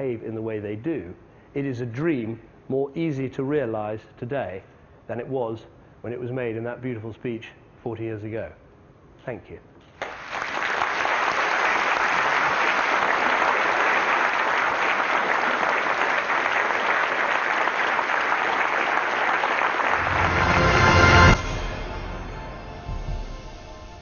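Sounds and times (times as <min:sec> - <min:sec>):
audience applauding: 0:10.0 - 0:21.4
low outro music: 0:19.9 - 0:24.0.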